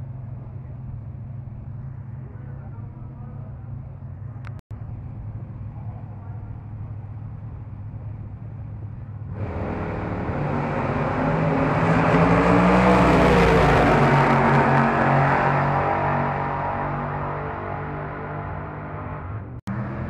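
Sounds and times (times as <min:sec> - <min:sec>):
low engine rumble: 0:00.0 - 0:20.0
drag race car engine at full throttle: 0:09.0 - 0:20.0.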